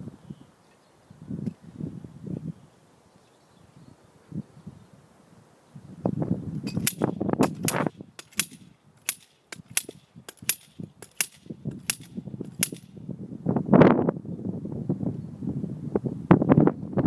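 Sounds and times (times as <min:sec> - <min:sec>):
sharp metallic clanks: 0:06.7 - 0:13.0.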